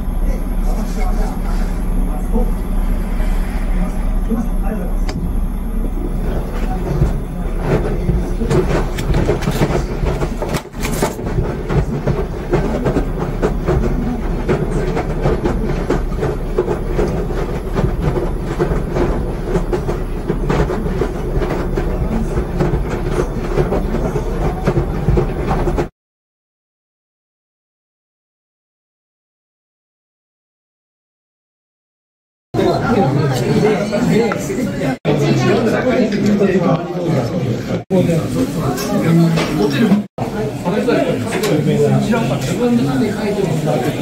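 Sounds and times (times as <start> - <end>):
washer-dryer rumbling: 0.0 - 25.9
rapid irregular clicking: 0.2 - 25.9.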